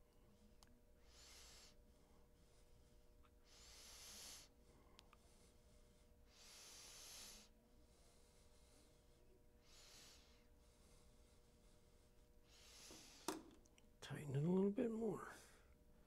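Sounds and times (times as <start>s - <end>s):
low steady hum: 0.0s - 16.0s
slow breathing: 1.0s - 13.5s.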